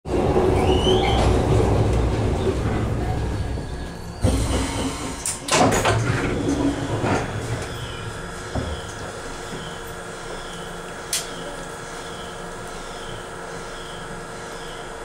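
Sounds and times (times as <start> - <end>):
train wheel and track rumble: 0.1 - 15.0
wheel squeal: 0.5 - 1.4.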